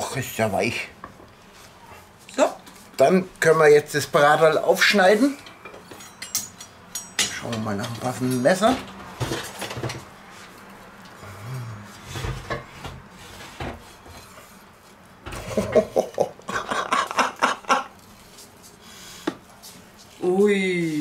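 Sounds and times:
utensils knocking: 0:05.5 - 0:10.0.

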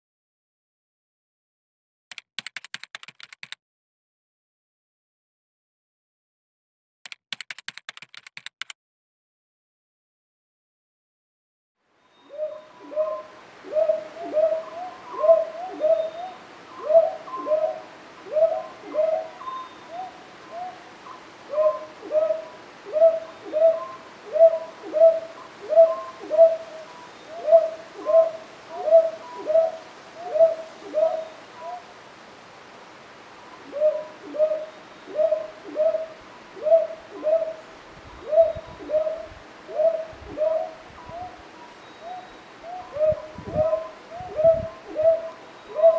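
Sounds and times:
owl hooting: 0:12.1 - 0:31.9, 0:33.6 - 0:45.9.

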